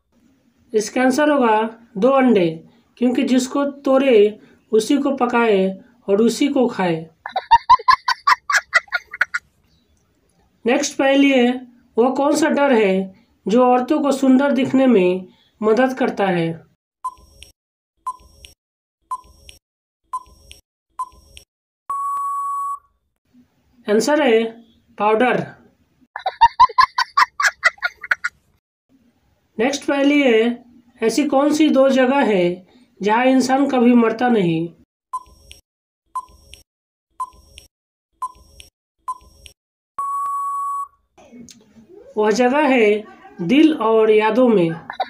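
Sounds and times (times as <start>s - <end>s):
long steady beep: 21.9s - 22.9s, 40.0s - 41.0s
short electronic beeps: 21.9s - 22.9s, 40.0s - 41.0s.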